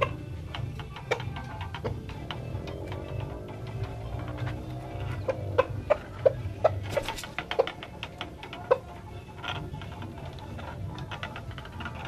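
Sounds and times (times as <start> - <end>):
chicken clucking: 4.6 - 9.1.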